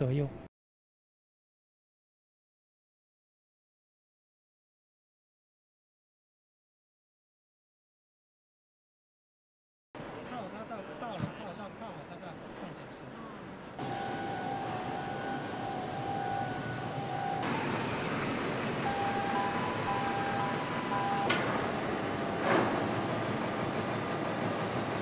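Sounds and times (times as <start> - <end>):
crane machinery noise: 10.0 - 25.0
warning tones beeping: 13.8 - 23.3.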